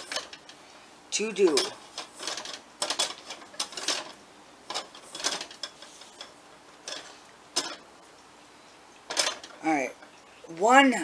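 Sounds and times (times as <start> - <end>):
saucepan rattling on burner: 0.0 - 0.6, 1.4 - 8.0, 9.0 - 10.2.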